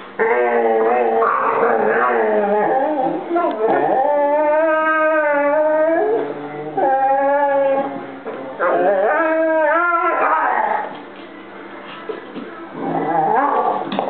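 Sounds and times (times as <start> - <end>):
puppy whining and howling: 0.2 - 10.9.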